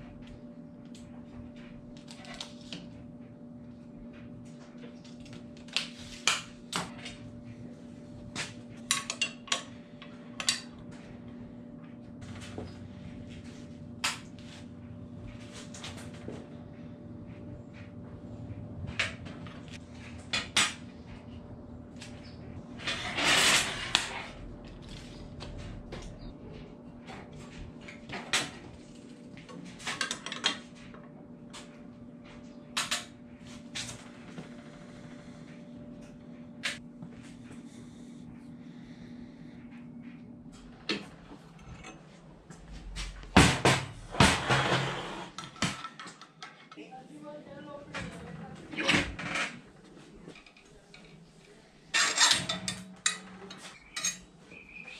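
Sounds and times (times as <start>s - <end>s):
metal rods clinking and clanking: 8.9s - 9.7s, 51.9s - 54.3s.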